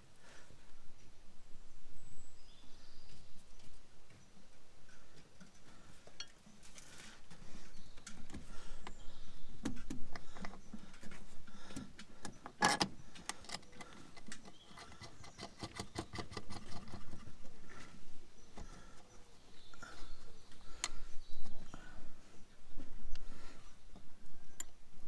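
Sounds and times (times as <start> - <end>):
small metallic clicks and rubbing: 9.6 - 17.5.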